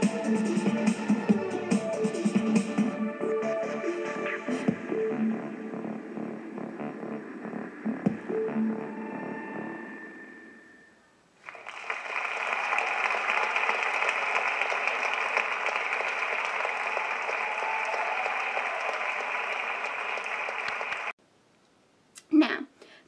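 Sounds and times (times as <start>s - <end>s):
audience applauding: 11.4s - 21.2s.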